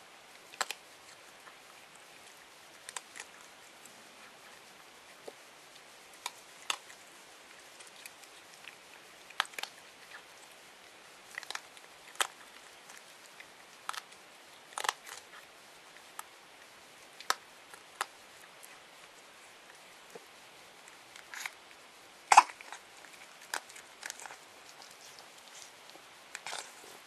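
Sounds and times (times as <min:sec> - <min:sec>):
faint steady hiss: 0:00.0 - 0:27.0
animal crunching dry food: 0:00.4 - 0:03.5, 0:05.8 - 0:10.6, 0:11.2 - 0:16.3, 0:22.3 - 0:27.0.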